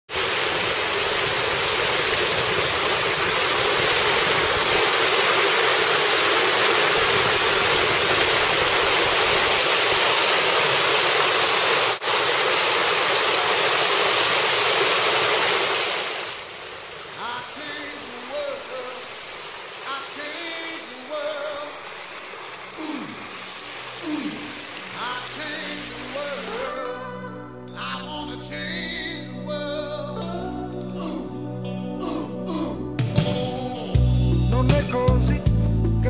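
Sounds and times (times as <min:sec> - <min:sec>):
fountain water splashing: 0:00.1 - 0:26.8.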